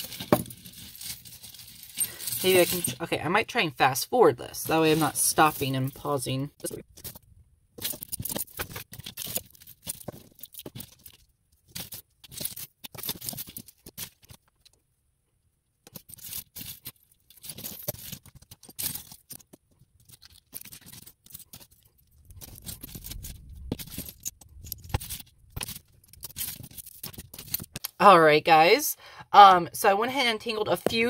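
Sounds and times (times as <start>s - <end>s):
jewelry chains and beads clinking: 0.0s - 3.6s, 4.6s - 7.2s, 7.8s - 14.4s, 15.9s - 28.0s.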